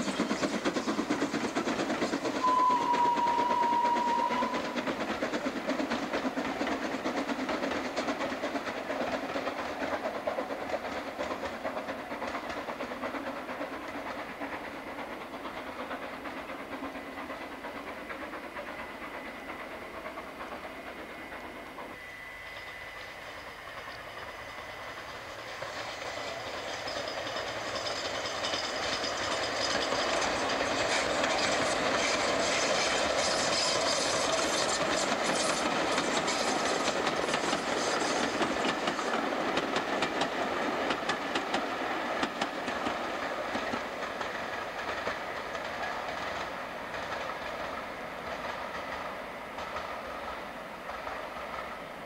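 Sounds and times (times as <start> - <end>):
steam train passing: 0.0 - 52.0
wheels clicking over rail joints: 25.0 - 51.7.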